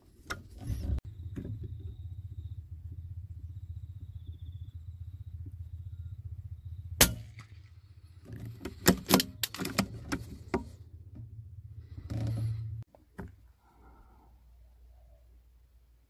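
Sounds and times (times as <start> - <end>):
low rumble: 0.7 - 8.8, 9.5 - 12.9
rifle shot crack: 7.0 - 7.8.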